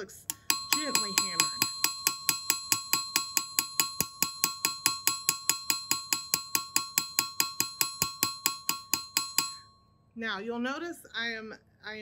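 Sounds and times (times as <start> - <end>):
anvil ringing: 0.0 - 9.8
hammer striking brass sheet: 0.3 - 9.7.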